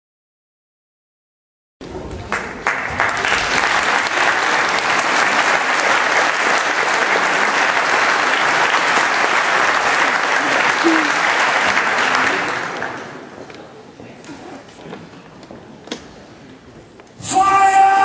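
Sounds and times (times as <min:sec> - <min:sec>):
audience applauding: 0:02.1 - 0:13.5.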